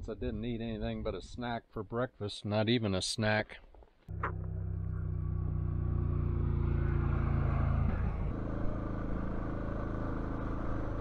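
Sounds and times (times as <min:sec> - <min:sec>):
motorcycle engine running: 0:04.1 - 0:11.0.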